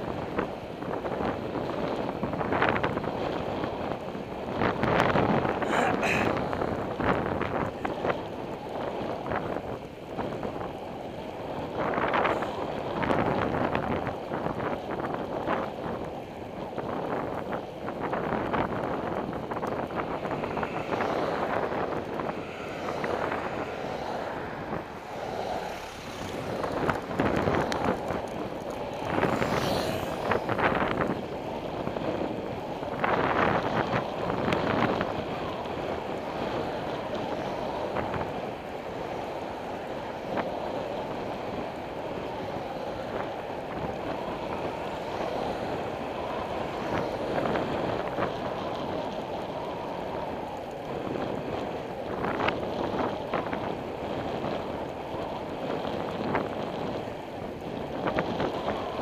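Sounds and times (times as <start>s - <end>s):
road noise: 0.0s - 59.0s
wind rushing over microphone: 0.0s - 59.0s.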